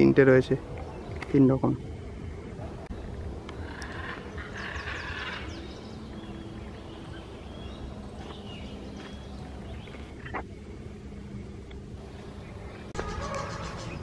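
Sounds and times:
birds chirping: 0:00.0 - 0:14.0
steady low rumble: 0:00.0 - 0:14.0.

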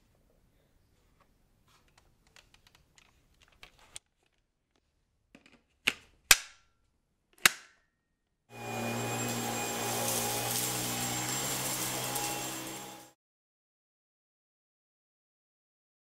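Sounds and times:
sharp plastic latching clicks: 0:07.4 - 0:07.8
vacuum motor high whine: 0:08.5 - 0:13.2.

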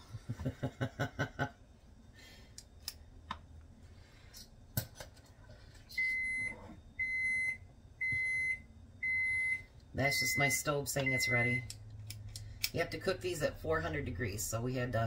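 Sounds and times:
oven high beeps: 0:06.0 - 0:11.7.

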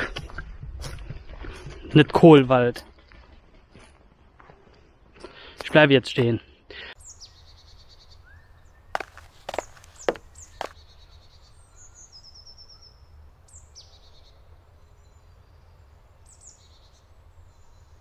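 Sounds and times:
small birds chirping and trilling: 0:06.8 - 0:18.0.

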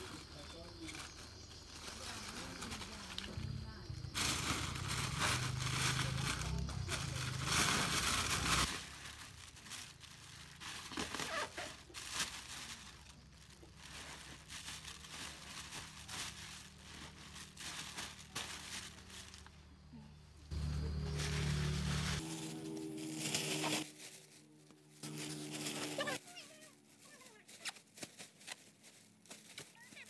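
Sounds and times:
plastic bag crinkling: 0:00.8 - 0:19.6, 0:20.5 - 0:30.0.

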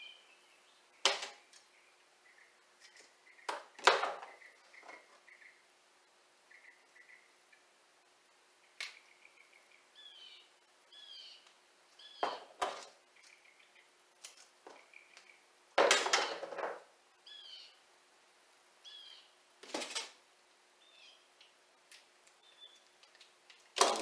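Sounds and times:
faint chirping: 0:00.0 - 0:03.5, 0:04.3 - 0:05.7, 0:06.4 - 0:07.8, 0:08.5 - 0:12.4, 0:13.0 - 0:14.0, 0:14.7 - 0:15.5, 0:17.2 - 0:17.8, 0:18.8 - 0:19.4, 0:20.8 - 0:21.4, 0:22.4 - 0:23.0.

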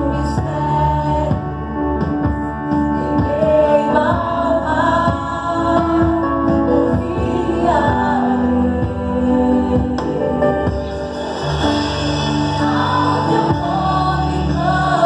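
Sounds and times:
keyboard sustained chords: 0:00.0 - 0:15.0
person singing: 0:12.3 - 0:15.0.

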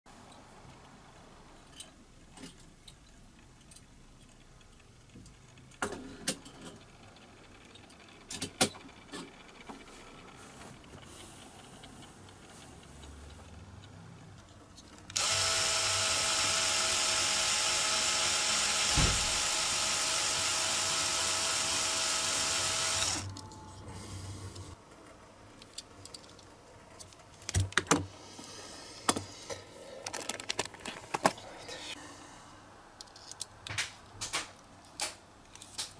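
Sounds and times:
electric drill running: 0:15.2 - 0:23.3.

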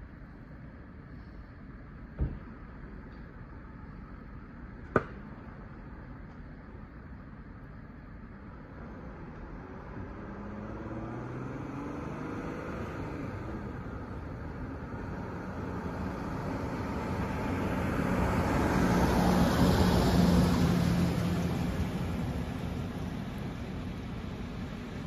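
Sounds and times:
fire truck driving past: 0:08.4 - 0:25.0.

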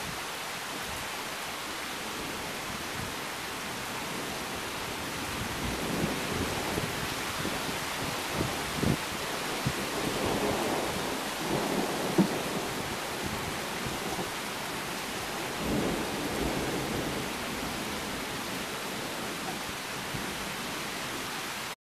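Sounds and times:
heavy rain pouring: 0:00.0 - 0:21.8
thunder rumbling: 0:03.7 - 0:20.5
wind buffeting microphone: 0:03.8 - 0:20.4.

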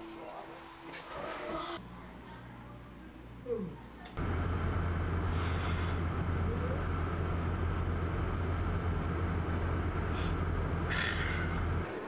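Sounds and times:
car engine and road noise: 0:04.2 - 0:11.9.

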